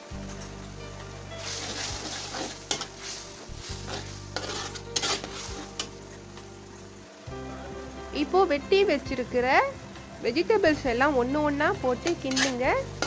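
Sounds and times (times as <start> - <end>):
sauce sizzling: 0.0 - 13.0
spatula scraping metal wok: 1.3 - 6.9, 11.9 - 13.0.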